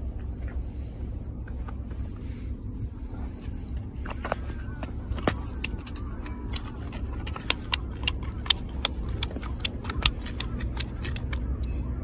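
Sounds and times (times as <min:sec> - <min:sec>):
fish slapping on concrete: 0:05.2 - 0:11.5.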